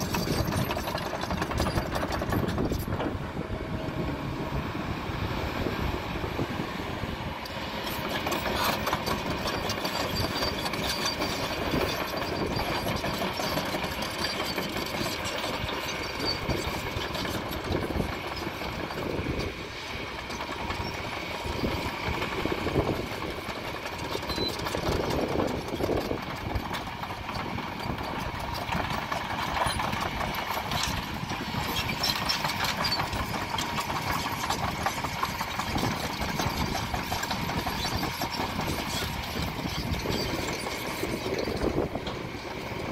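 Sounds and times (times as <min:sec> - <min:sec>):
excavator diesel engine running: 0:00.0 - 0:42.9.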